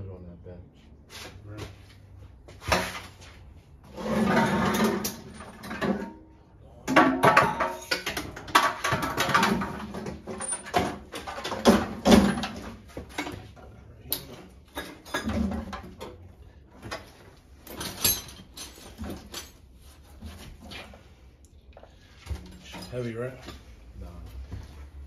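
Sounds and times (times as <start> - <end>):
heavy metal parts clunking: 3.9 - 20.9.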